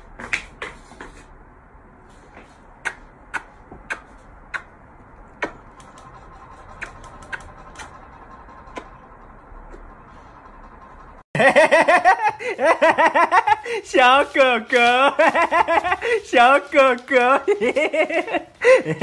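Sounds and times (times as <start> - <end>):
low steady background hum: 0.0 - 19.0
kiss smacks: 2.8 - 4.8, 5.4 - 5.6.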